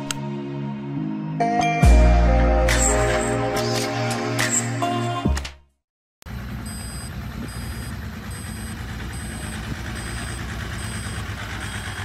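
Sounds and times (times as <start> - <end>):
truck engine rumble: 6.2 - 12.0
reversing alarm beeps: 6.6 - 12.0.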